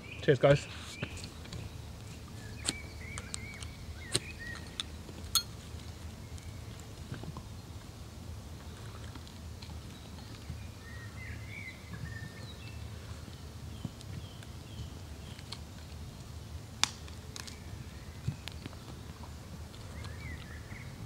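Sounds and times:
small birds chirping: 0.0 - 5.0
dry twigs cracking in fire: 15.2 - 17.7.

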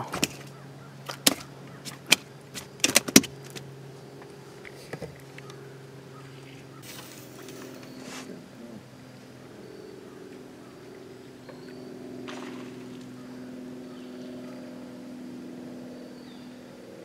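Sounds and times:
sharp clicks and knocks: 1.1 - 3.6.

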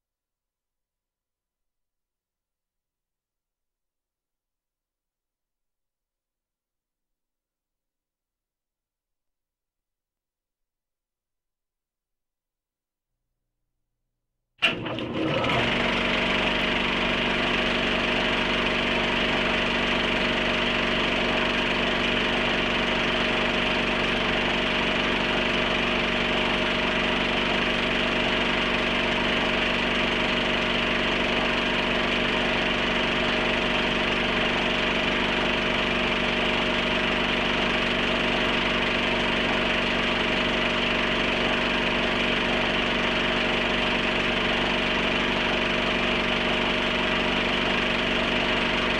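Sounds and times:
film projector whirring: 14.6 - 48.9.

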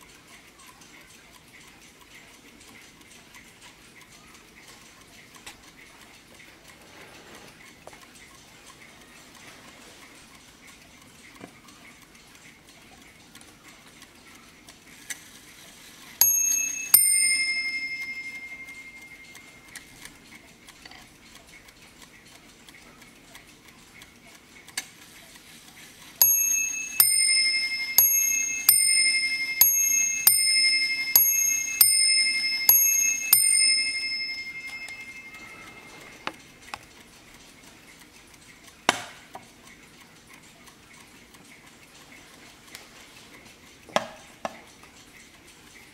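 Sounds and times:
clock ticking: 0.0 - 45.9
mantel clock striking bells: 16.2 - 20.1, 26.2 - 36.6.

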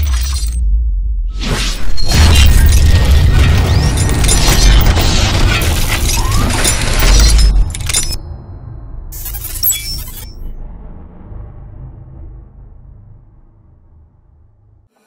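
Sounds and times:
shattering clinking debris: 2.5 - 8.3
heavy boom with deep rumble: 10.5 - 14.8.

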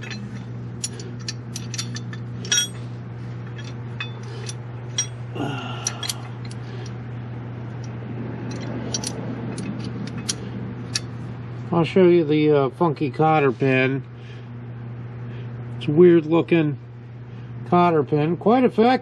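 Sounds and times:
small metal clicks and clinks: 0.0 - 2.8, 5.8 - 7.0, 7.8 - 11.1
steady low hum: 0.0 - 19.0.

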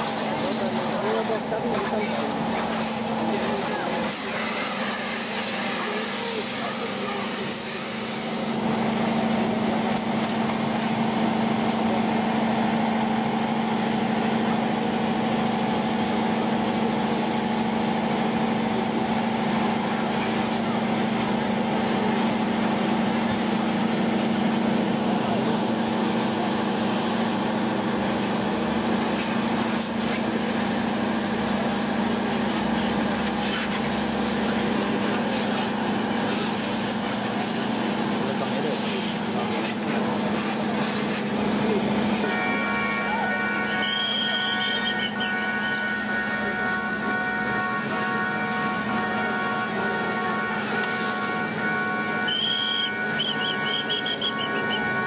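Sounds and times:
faint voices: 0.0 - 8.2, 32.6 - 55.0
engine drone: 0.0 - 55.0.

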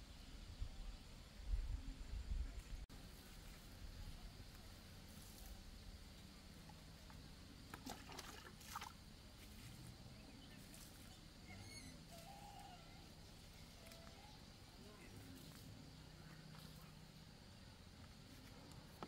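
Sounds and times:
faint bird chirps: 10.0 - 17.8.

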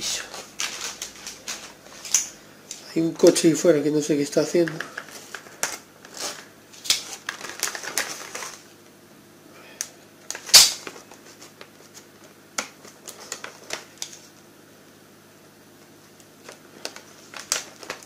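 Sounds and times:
packaging clicks and crinkles: 0.2 - 2.4, 4.6 - 8.7, 16.1 - 18.0.

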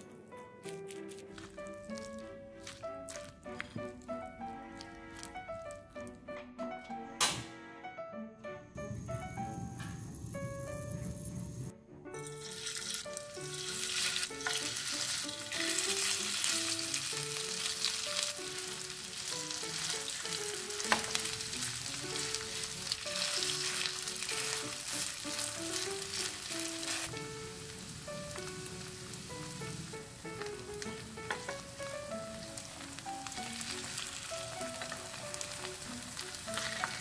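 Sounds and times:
batter sizzling in hot oil: 8.8 - 37.0.

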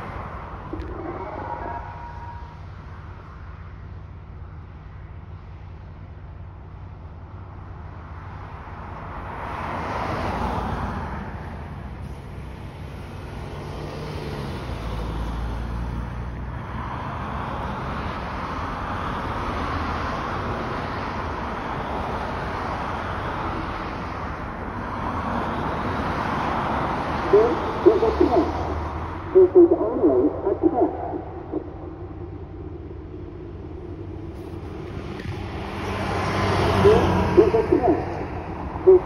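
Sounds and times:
warning siren: 0.6 - 2.8, 26.9 - 34.3, 36.5 - 39.0.

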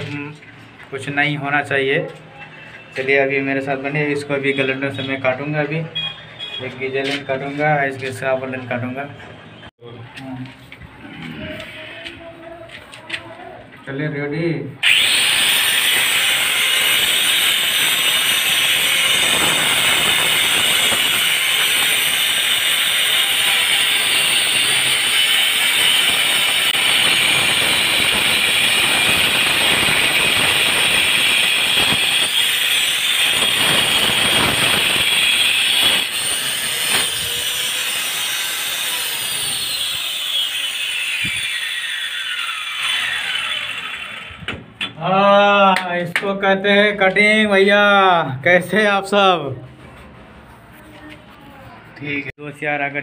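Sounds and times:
angle grinder cutting brick: 14.8 - 44.6.

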